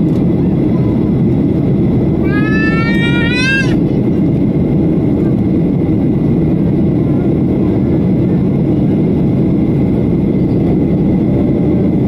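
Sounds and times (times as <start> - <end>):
airliner cabin rumble: 0.0 - 12.0
short high-pitched cry: 2.2 - 3.8.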